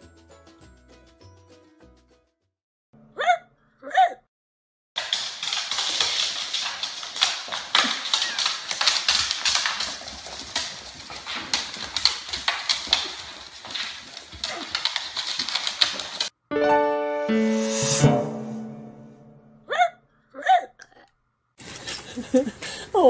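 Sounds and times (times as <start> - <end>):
puppies' claws clicking on hardwood: 5.0 - 16.3.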